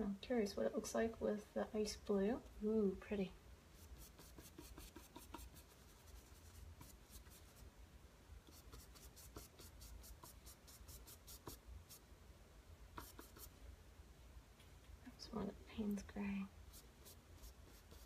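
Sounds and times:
paintbrush scratching strokes: 0:03.7 - 0:07.7, 0:08.4 - 0:12.0, 0:13.0 - 0:13.6, 0:16.6 - 0:18.0.

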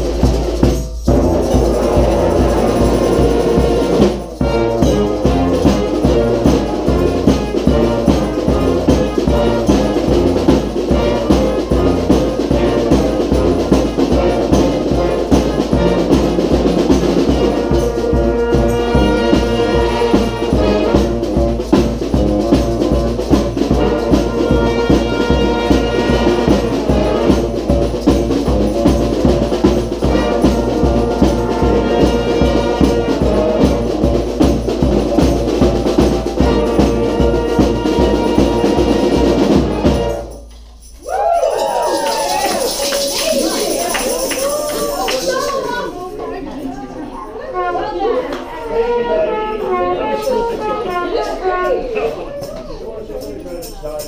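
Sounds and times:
snare and bass drum beat: 0:00.0 - 0:40.3
horns holding loud chords: 0:00.0 - 0:40.5, 0:47.4 - 0:51.9
brass band playing: 0:00.0 - 0:52.2.

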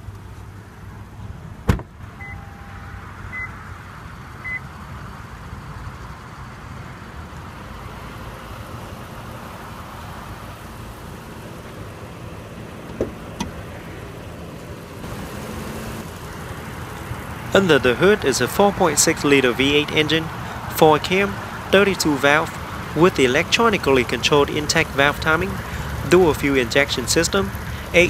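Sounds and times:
car engine idling: 0:00.0 - 0:28.0
hood latch clicks: 0:01.7 - 0:02.0, 0:12.8 - 0:13.6
sharp clunk: 0:01.7 - 0:02.0
short electronic beeps: 0:02.2 - 0:03.5.

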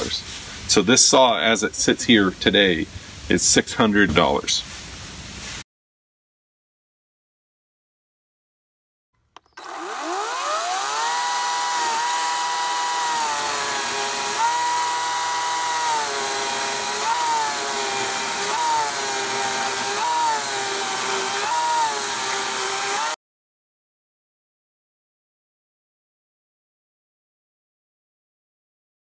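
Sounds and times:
chainsaw cutting log: 0:09.4 - 0:23.2.

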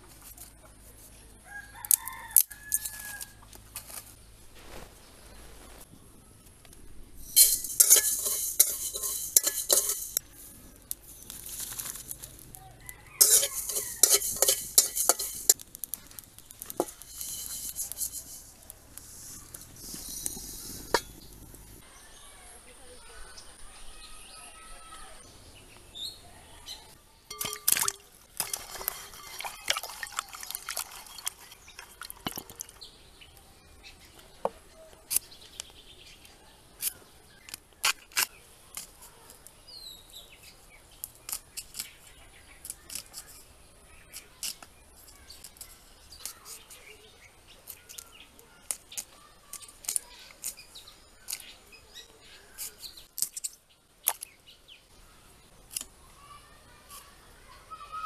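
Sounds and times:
birds chirping: 0:12.0 - 0:58.0
water splashing in a tub: 0:27.4 - 0:32.7.

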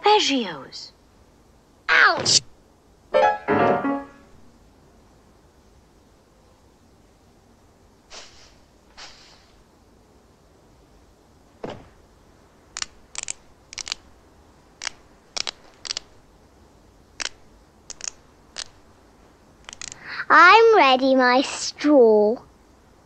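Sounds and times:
thump: 0:11.6 - 0:12.0
sharp clicks and cracks: 0:12.7 - 0:14.1, 0:14.8 - 0:16.2, 0:17.2 - 0:18.8, 0:19.6 - 0:20.0.

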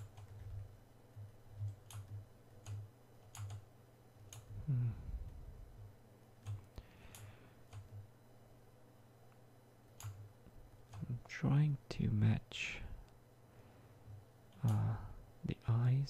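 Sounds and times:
mouse and keyboard clicks: 0:01.6 - 0:03.6.

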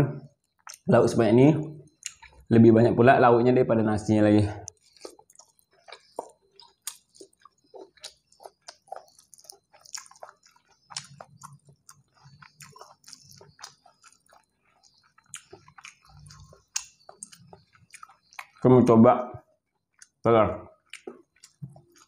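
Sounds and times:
chewing food: 0:00.3 - 0:00.9, 0:01.8 - 0:02.5, 0:04.6 - 0:18.7, 0:19.4 - 0:22.0
wet mouth clicks and smacks: 0:04.7 - 0:18.6, 0:20.9 - 0:22.0.

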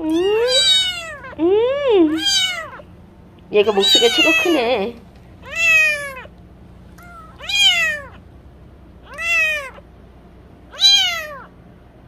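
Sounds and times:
kitten mewing loudly: 0:00.1 - 0:01.4, 0:02.1 - 0:02.8, 0:03.7 - 0:04.6, 0:05.4 - 0:06.3, 0:07.0 - 0:08.2, 0:09.1 - 0:09.8, 0:10.7 - 0:11.5.

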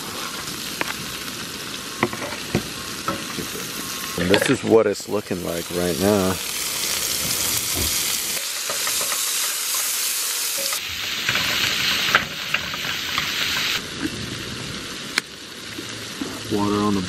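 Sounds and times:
sausage and onions sizzling: 0:00.0 - 0:17.0
fork scraping a pan: 0:07.8 - 0:13.8.

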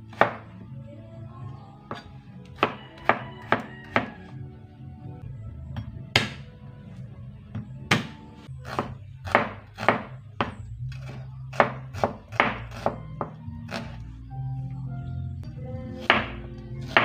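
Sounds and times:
faint background music: 0:00.0 - 0:17.0
knife chopping on plastic board: 0:00.1 - 0:00.4, 0:01.9 - 0:04.1, 0:06.2 - 0:06.4, 0:07.9 - 0:14.0.

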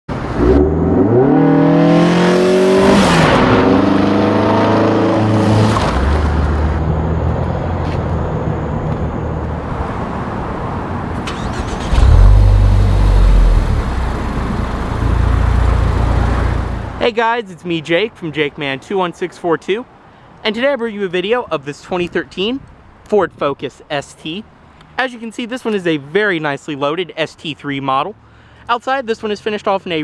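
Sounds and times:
car engine accelerating: 0:00.1 - 0:07.8, 0:11.2 - 0:17.0
car engine revving loudly: 0:00.2 - 0:06.0, 0:11.4 - 0:16.4.

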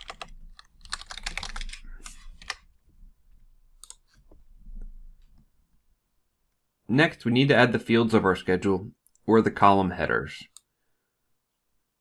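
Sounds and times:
computer keyboard typing: 0:00.0 - 0:02.7, 0:03.8 - 0:04.1.

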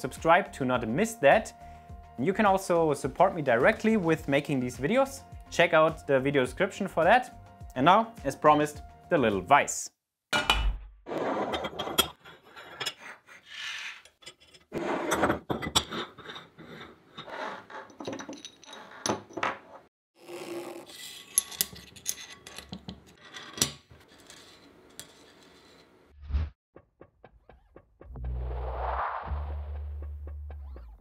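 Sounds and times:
metal parts clinking: 0:18.0 - 0:19.4, 0:21.2 - 0:23.8.

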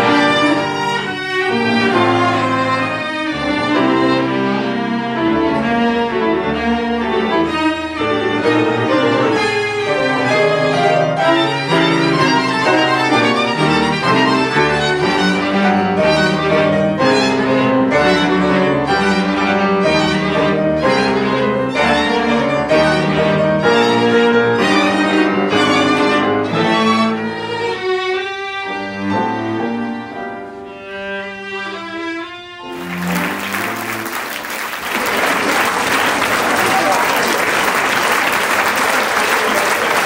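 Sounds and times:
classical chamber music: 0:00.0 - 0:40.0
audience applause: 0:32.7 - 0:40.0.

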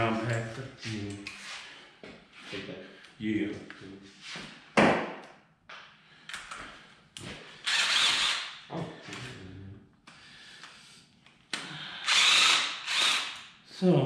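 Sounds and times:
cordless drill running in bursts: 0:07.6 - 0:08.6, 0:12.0 - 0:13.4.

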